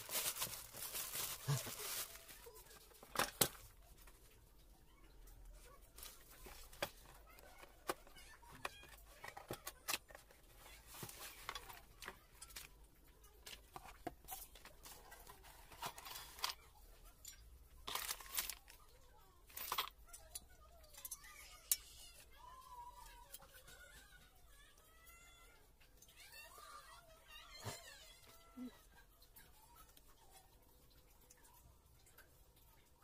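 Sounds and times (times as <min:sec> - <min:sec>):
cardboard and paper rustling: 0:00.0 - 0:04.2, 0:05.6 - 0:16.7, 0:17.8 - 0:20.0.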